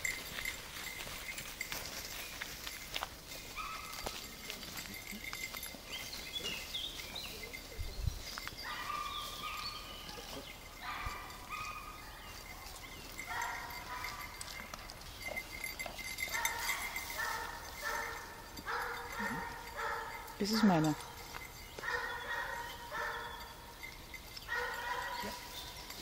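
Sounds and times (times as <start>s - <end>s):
high bird chirps: 5.9s - 13.2s.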